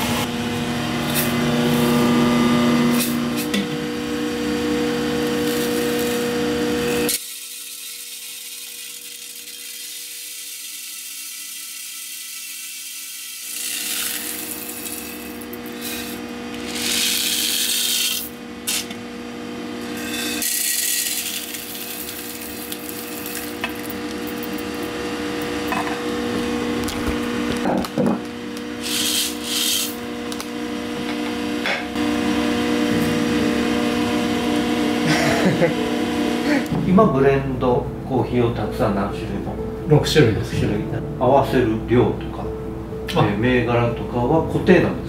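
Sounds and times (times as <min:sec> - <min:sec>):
motor hum: 0:00.0 - 0:11.6, 0:13.4 - 0:36.9
coffee beans rasping: 0:05.2 - 0:19.0, 0:19.8 - 0:25.8, 0:28.8 - 0:30.4.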